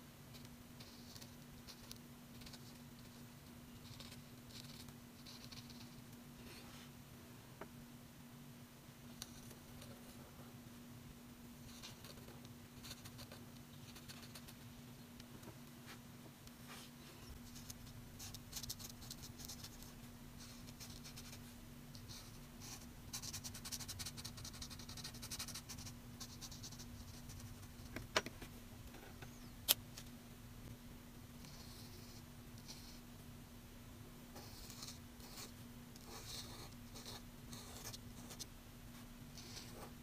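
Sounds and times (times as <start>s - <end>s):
marker scratching on paper: 22.1s - 27.6s, 31.4s - 33.0s, 34.4s - 38.5s, 39.4s - 40.0s.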